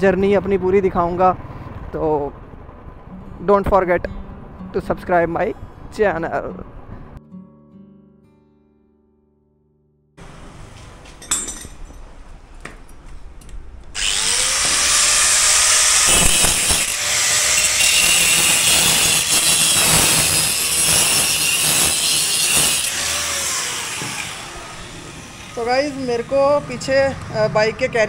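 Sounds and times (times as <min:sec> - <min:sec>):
power tool grinding metal: 0:14.0 - 0:26.8.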